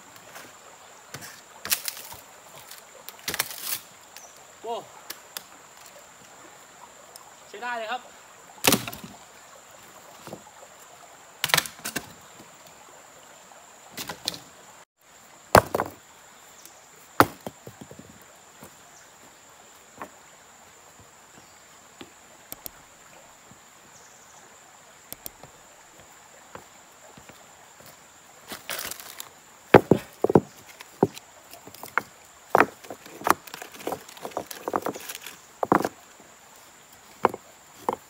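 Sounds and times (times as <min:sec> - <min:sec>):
high insect drone: 0:00.0 - 0:38.0
dry branches cracking on stones: 0:01.7 - 0:03.8, 0:28.5 - 0:31.2, 0:32.6 - 0:35.9
faint clicks: 0:22.5 - 0:22.8, 0:25.1 - 0:25.4.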